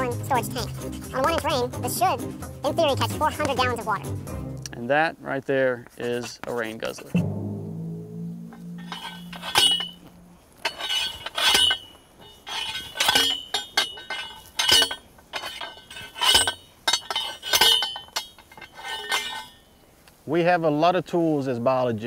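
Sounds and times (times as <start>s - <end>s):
post driver ringing metal clanks: 8.5s - 19.6s.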